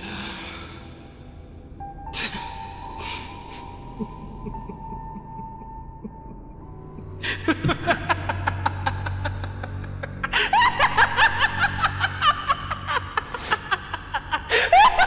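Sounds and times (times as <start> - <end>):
low droning music: 0.0 - 15.0
woman laughing: 3.9 - 15.0.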